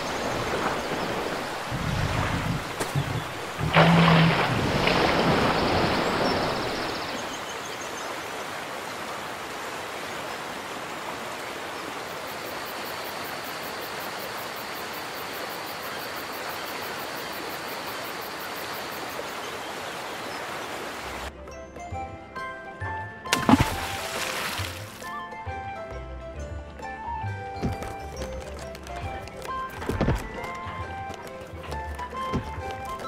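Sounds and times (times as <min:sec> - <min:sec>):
rushing sea water: 0:00.0 - 0:21.3, 0:23.3 - 0:25.2.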